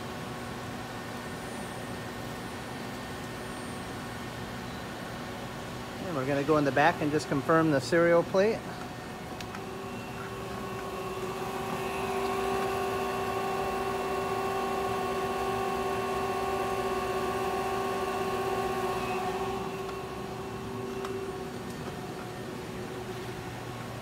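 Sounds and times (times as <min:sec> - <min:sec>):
lathe machine whine: 0:05.9 - 0:24.0.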